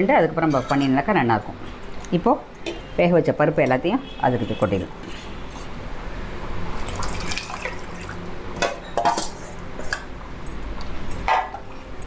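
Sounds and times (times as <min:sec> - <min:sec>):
thick liquid sloshing and plopping: 0:06.8 - 0:08.3.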